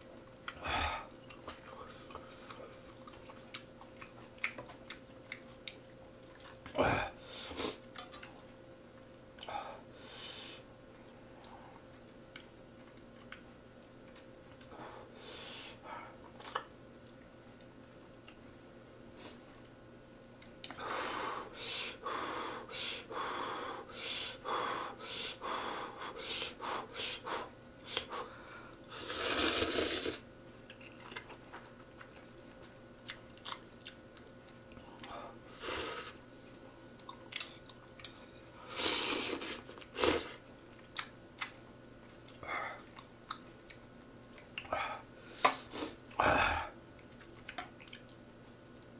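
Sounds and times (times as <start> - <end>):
person slurping noodles: 28.9 - 30.2, 35.6 - 36.2, 38.7 - 40.4.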